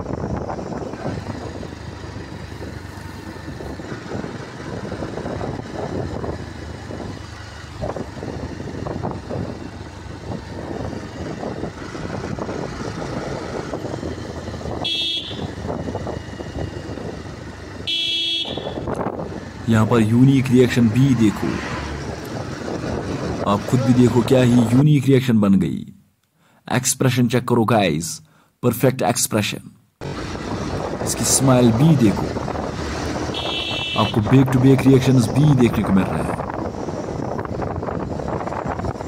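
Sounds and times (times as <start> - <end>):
motorcycle engine and wind rumble: 0.0 - 25.0, 30.0 - 39.0
vehicle horn beeping: 14.8 - 15.6, 17.8 - 18.9, 33.2 - 34.3.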